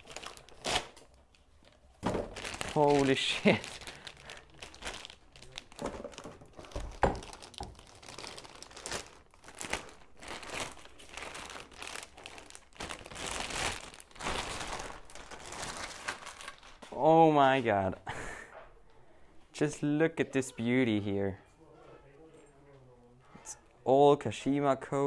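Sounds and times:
plastic packaging crinkling: 0.0s - 17.0s.

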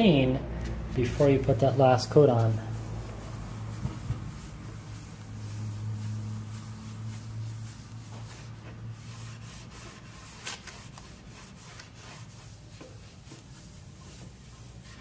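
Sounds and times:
cloth rubbing on wooden table: 0.9s - 15.0s.

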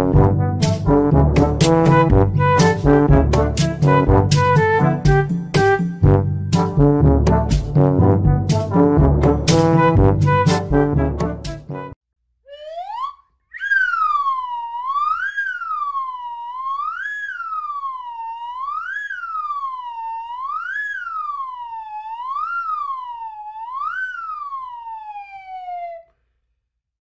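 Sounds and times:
siren wailing: 12.5s - 26.1s.

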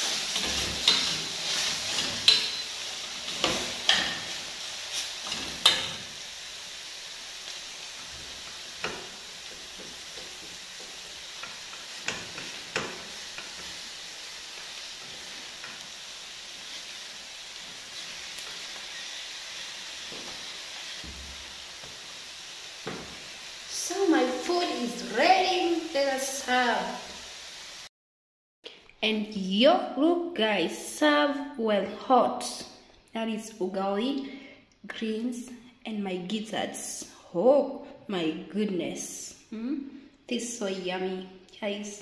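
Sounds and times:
spoons clinking and scraping pots: 0.0s - 4.3s
faint food sizzling: 0.0s - 27.9s.

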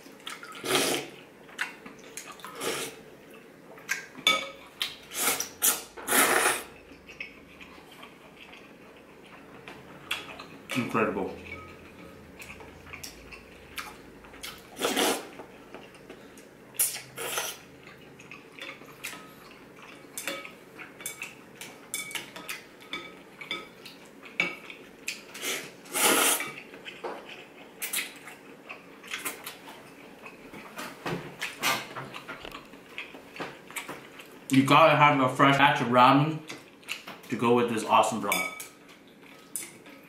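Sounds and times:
slurping noodles: 0.6s - 1.2s, 2.4s - 3.0s, 5.1s - 6.7s, 14.6s - 15.4s, 25.4s - 26.6s
chopsticks and spoon clinking on bowl: 4.2s - 4.7s, 6.7s - 14.5s, 17.9s - 24.8s, 38.3s - 38.8s.

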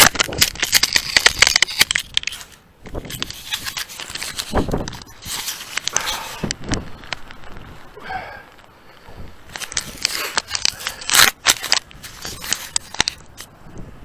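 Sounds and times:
camera rubbing against fur: 2.2s - 7.7s, 9.6s - 13.5s.

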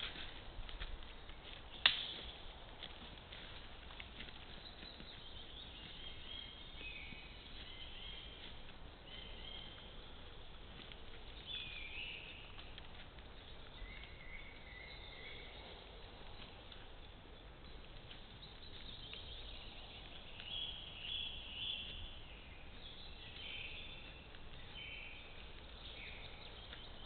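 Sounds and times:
birds singing whistled phrases: 11.4s - 12.6s, 13.4s - 15.8s.

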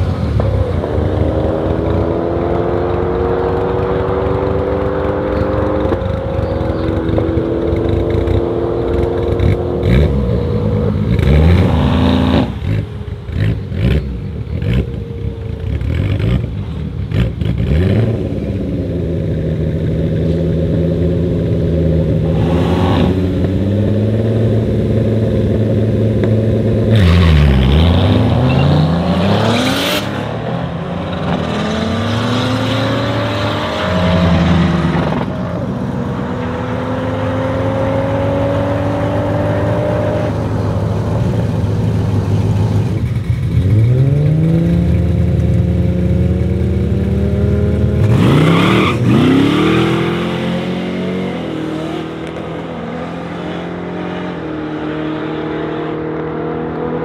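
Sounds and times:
car engines revving: 0.0s - 57.0s
cars accelerating hard: 22.0s - 41.2s, 43.6s - 57.0s.

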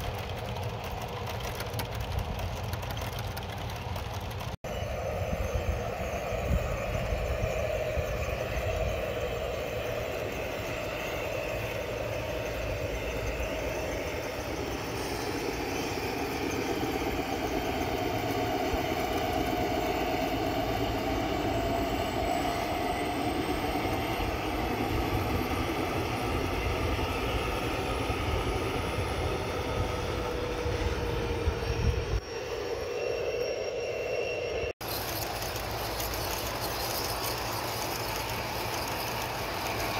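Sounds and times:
model train rumbling on rails: 0.0s - 39.9s.

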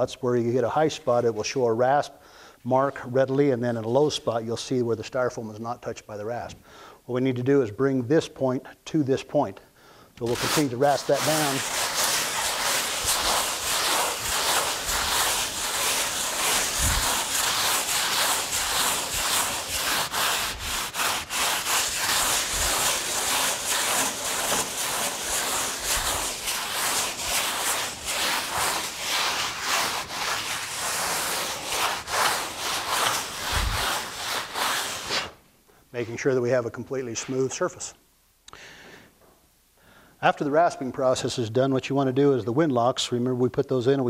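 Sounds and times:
foam rasp scraping polystyrene: 10.2s - 35.4s.

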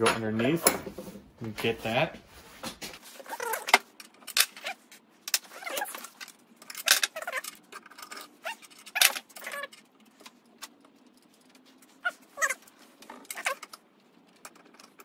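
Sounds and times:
tool squeak: 5.5s - 6.1s, 6.9s - 9.8s, 12.0s - 13.7s.

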